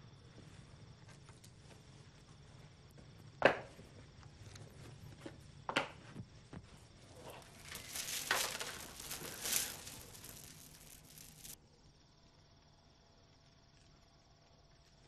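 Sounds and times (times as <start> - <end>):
crickets chirping: 0.0 - 15.0
bead curtain clacking: 7.1 - 11.6.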